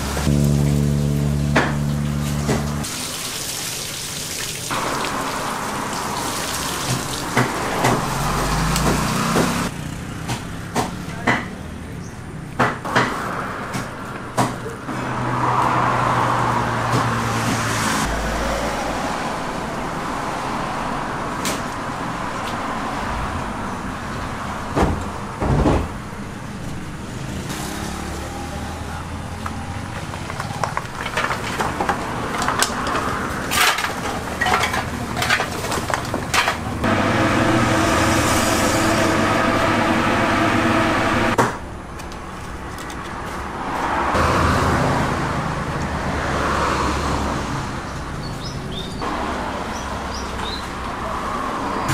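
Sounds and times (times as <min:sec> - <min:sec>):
road traffic passing: 0:00.0 - 0:51.9
knocks and clatter: 0:24.7 - 0:26.0, 0:30.0 - 0:37.0.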